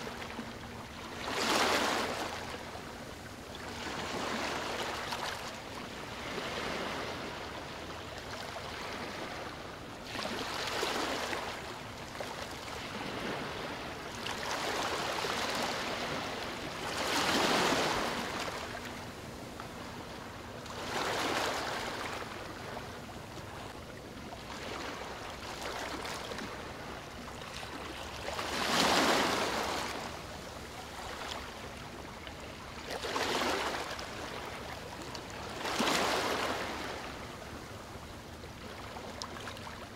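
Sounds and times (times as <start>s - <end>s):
waves washing in: 0.0s - 11.7s, 12.3s - 20.0s, 24.4s - 32.2s.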